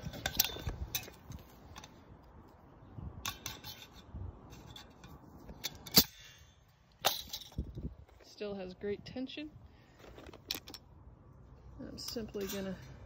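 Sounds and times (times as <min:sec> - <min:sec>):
pliers snapping through wire: 0:05.6 - 0:06.2.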